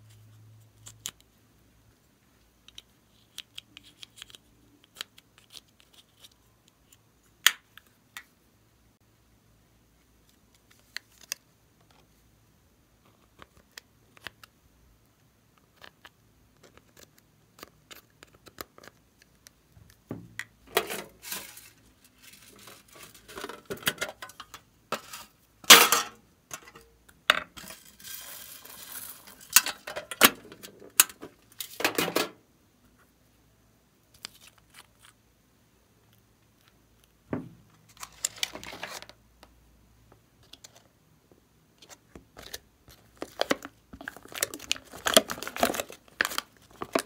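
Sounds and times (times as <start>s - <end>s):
containers scraping and clattering: 20.7s - 32.4s.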